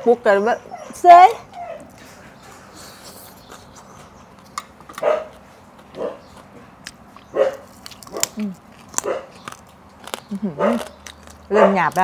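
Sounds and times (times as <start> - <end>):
dog barking: 5.0 - 5.4, 6.0 - 6.3, 7.3 - 8.4, 9.0 - 9.4, 10.6 - 10.9, 11.5 - 12.0.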